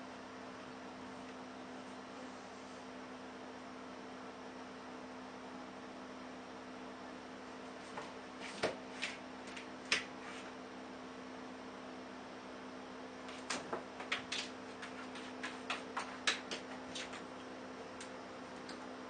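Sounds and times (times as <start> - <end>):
steady electrical hum: 0.0 - 19.0
kitten claws tapping on bathtub: 13.3 - 17.3.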